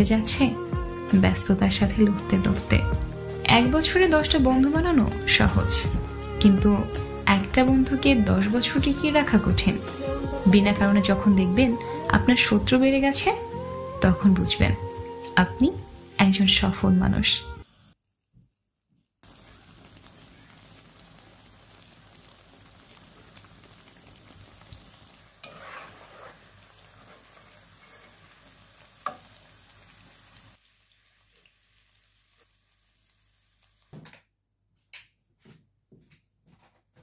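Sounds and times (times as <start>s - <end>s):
oil sizzling: 0.0s - 18.0s, 19.2s - 34.1s
spoon scraping a pan: 25.4s - 28.4s.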